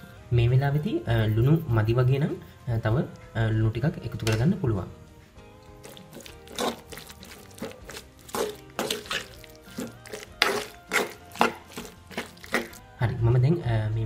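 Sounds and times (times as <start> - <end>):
background music: 0.0 - 14.0
spatula stirring thick mixture: 5.6 - 12.8.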